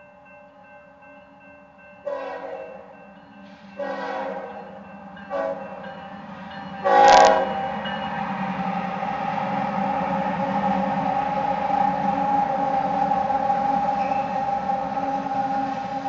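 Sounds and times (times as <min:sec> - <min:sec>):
locomotive air horn blasts: 0:02.1 - 0:02.6, 0:03.8 - 0:04.7, 0:05.3 - 0:05.6, 0:06.8 - 0:07.6.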